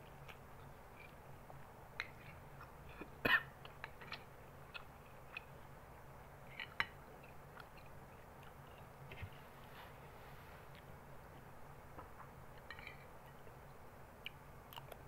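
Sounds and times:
chewing and mouth sounds: 0:00.0 - 0:09.3.

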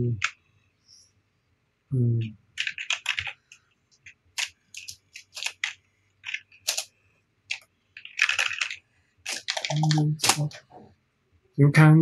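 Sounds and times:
keyboard typing: 0:00.1 - 0:00.4, 0:02.6 - 0:10.8.

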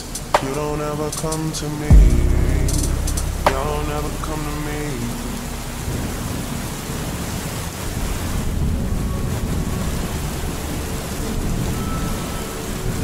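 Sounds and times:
heavy rain: 0:00.0 - 0:13.0
low thunder rumble: 0:01.8 - 0:11.8.

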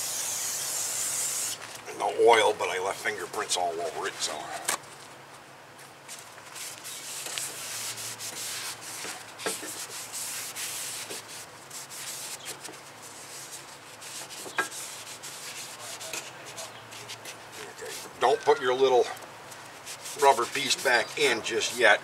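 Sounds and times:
scrubbing on a brake rotor: 0:06.4 - 0:22.0.

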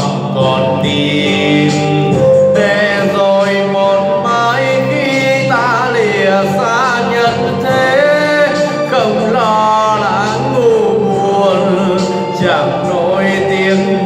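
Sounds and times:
backing music: 0:00.0 - 0:14.0
man singing with vibrato: 0:00.0 - 0:14.0.

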